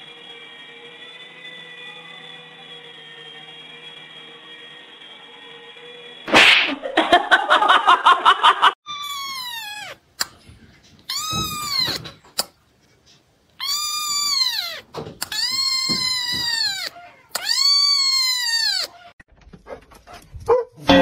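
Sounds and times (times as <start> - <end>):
kitten meowing: 8.9 - 10.0, 11.1 - 12.2, 13.6 - 19.1.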